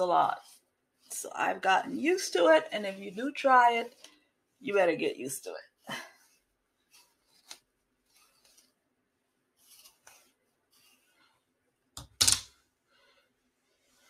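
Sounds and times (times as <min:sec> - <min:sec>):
comb swishing through hair: 0:00.0 - 0:05.0, 0:05.6 - 0:08.8, 0:09.5 - 0:11.6.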